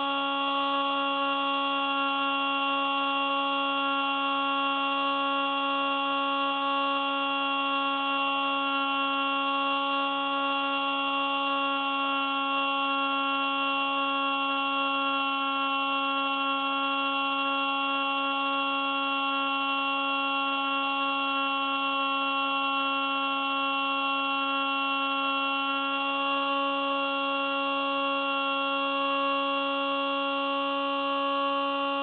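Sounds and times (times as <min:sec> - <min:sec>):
electric motor whine of model plane: 0:00.0 - 0:32.0.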